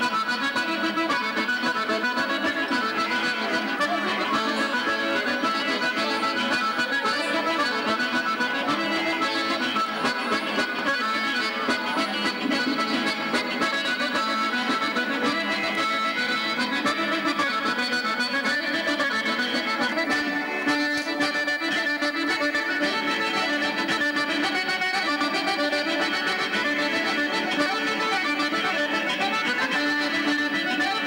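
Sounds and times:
accordion dance tune: 0:00.0 - 0:31.0.

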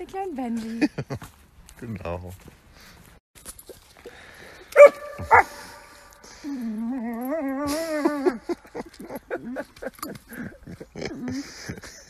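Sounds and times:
small dog yipping: 0:04.8 - 0:05.6
dog whining: 0:06.6 - 0:08.4.

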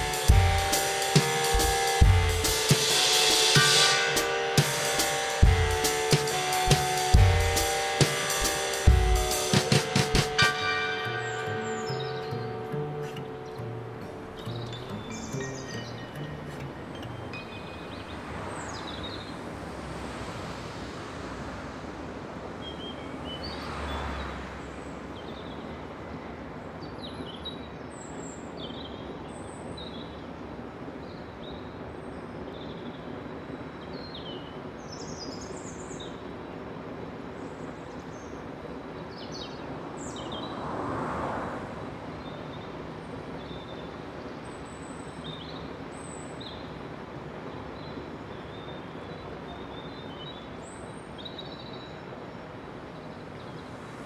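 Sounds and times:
traffic hum: 0:00.0 - 0:28.3, 0:30.2 - 0:54.0
small birds chirping: 0:04.7 - 0:19.4
vehicle passing: 0:08.4 - 0:22.6, 0:23.2 - 0:25.1, 0:40.3 - 0:42.2.

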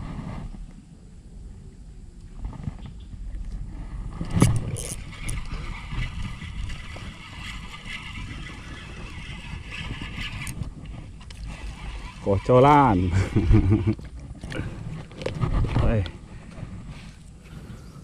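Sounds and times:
fishing reel cranking: 0:04.2 - 0:14.5
scratchy reel and line noise: 0:04.2 - 0:16.0.

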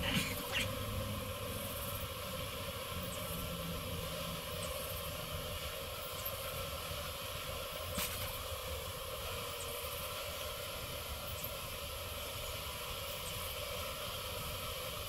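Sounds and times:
honeybees buzzing: 0:00.0 - 0:07.7.

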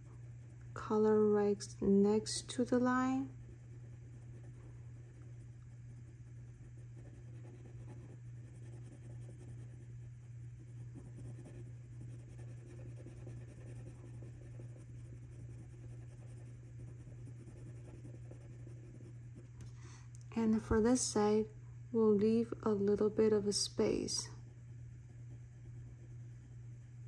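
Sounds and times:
steady low hum: 0:00.0 - 0:27.0
pencil scratching on paper: 0:03.3 - 0:19.4.

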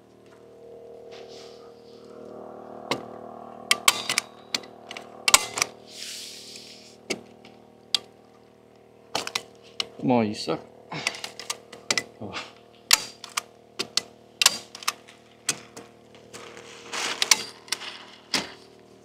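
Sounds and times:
rustle of house wrap: 0:16.2 - 0:18.3.

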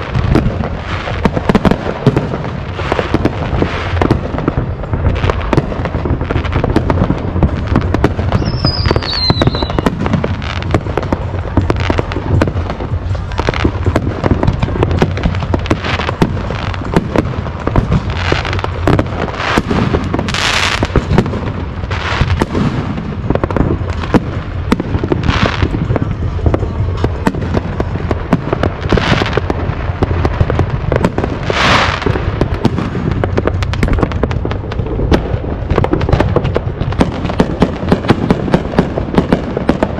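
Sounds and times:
fireworks bangs and crackles: 0:00.0 - 0:39.9
hissing firework bursts: 0:00.0 - 0:39.9
falling firework whistle: 0:08.2 - 0:10.2.

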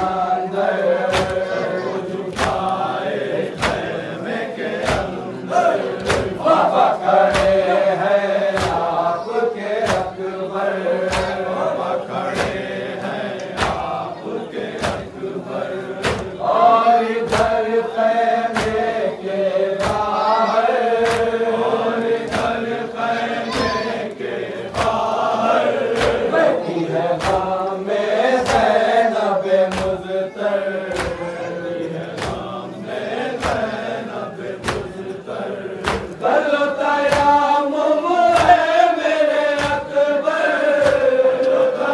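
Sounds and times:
crowd of men chanting: 0:00.0 - 0:41.9
hands slapping chests: 0:00.7 - 0:10.2, 0:11.0 - 0:17.8, 0:18.5 - 0:19.0, 0:19.8 - 0:22.8, 0:23.5 - 0:30.2, 0:30.8 - 0:37.5, 0:38.3 - 0:41.7.

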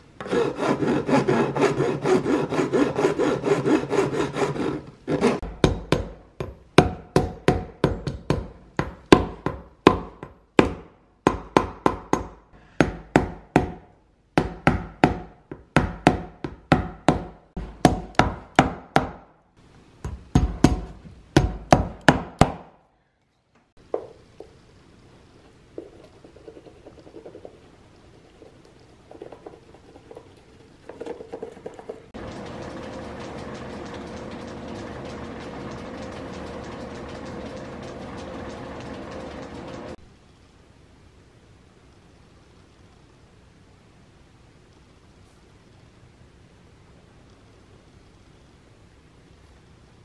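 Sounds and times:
hand file rasping: 0:00.2 - 0:05.4.

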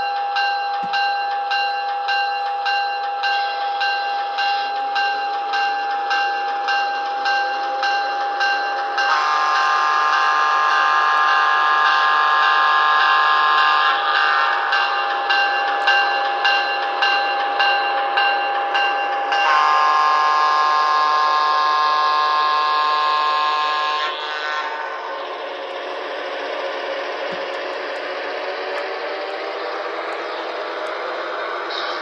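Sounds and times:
model train horn chord: 0:09.0 - 0:14.6, 0:19.4 - 0:25.0.

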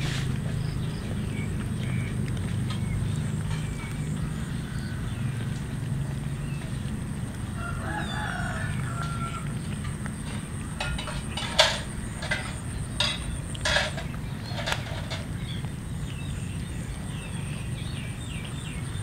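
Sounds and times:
low background rumble: 0:00.0 - 0:19.0
rooster crowing: 0:07.5 - 0:09.7.

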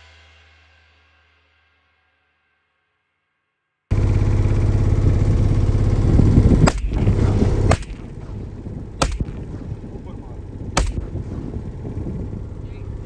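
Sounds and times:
motor humming: 0:03.9 - 0:13.0
shotgun shots: 0:06.6 - 0:11.6.

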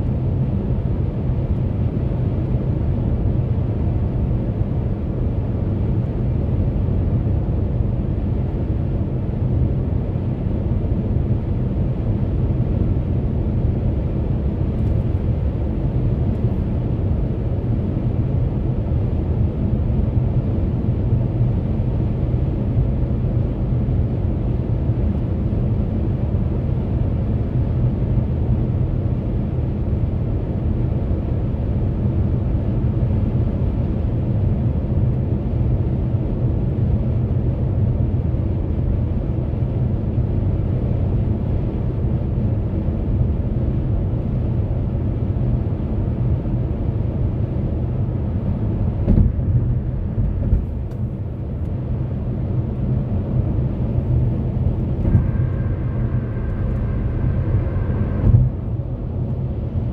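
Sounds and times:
tyre and road noise in car: 0:48.9 - 0:51.2, 0:53.8 - 0:58.8
short thump: 0:49.0 - 0:49.5.

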